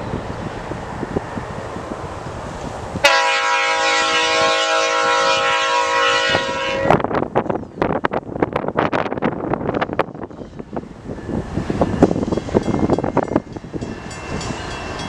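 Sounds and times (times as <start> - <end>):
wind rumbling on microphone: 0.0 - 15.0
locomotive air horn blast: 3.0 - 7.0.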